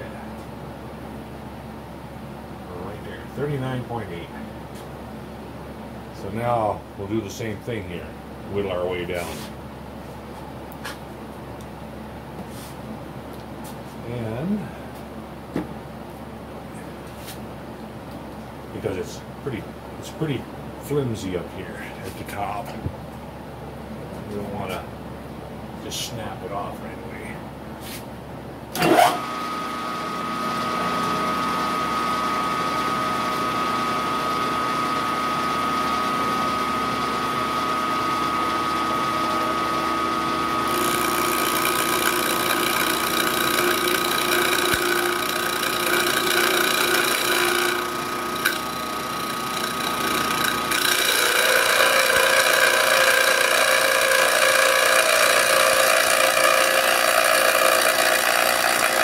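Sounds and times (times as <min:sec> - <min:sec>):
milling machine whine: 0:28.7 - 0:59.0.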